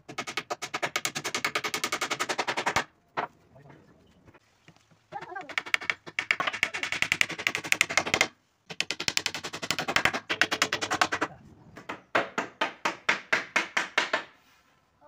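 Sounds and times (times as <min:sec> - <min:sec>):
hammer driving nails into wood: 0:00.1 - 0:02.9, 0:05.5 - 0:14.4.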